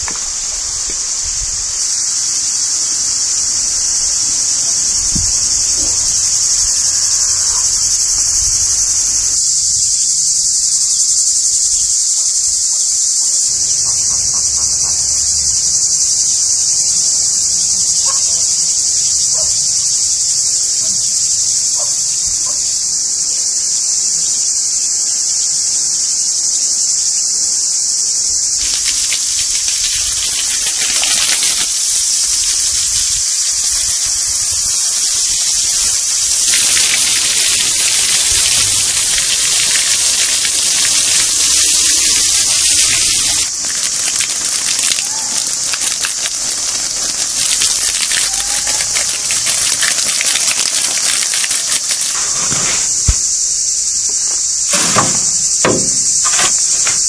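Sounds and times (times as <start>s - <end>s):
water spraying onto concrete: 0.0s - 9.3s, 28.6s - 53.2s
insect chorus shrilling: 0.0s - 57.0s.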